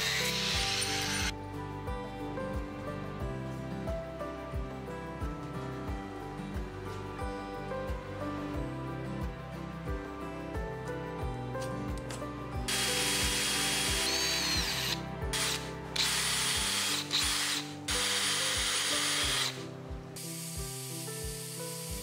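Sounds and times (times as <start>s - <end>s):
electric drill boring through metal: 0.0s - 1.3s, 12.7s - 19.6s
soft background music: 0.0s - 22.0s.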